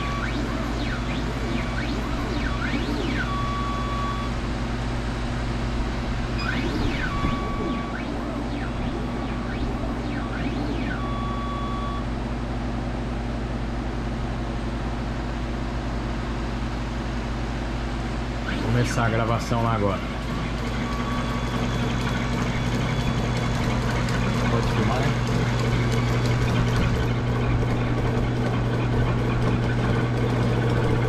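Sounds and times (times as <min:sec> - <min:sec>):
engraving machine whining: 0:00.0 - 0:04.5, 0:05.9 - 0:12.1, 0:18.4 - 0:31.0
low hum: 0:00.0 - 0:12.7.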